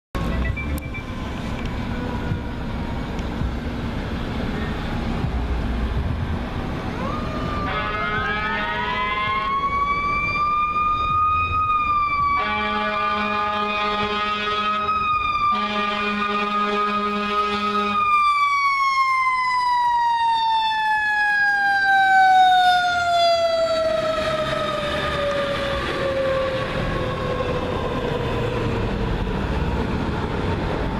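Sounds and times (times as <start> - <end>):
low rumbling traffic: 0.2 - 30.9
mechanical siren wailing: 6.9 - 28.3
air horn blasts: 7.6 - 9.6, 12.4 - 14.9, 15.5 - 18.0.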